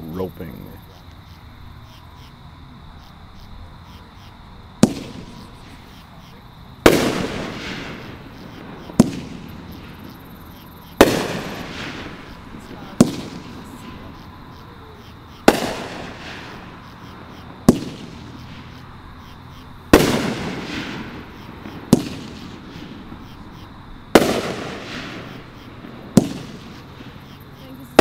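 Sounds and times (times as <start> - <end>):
fireworks banging with echo: 4.7 - 28.0.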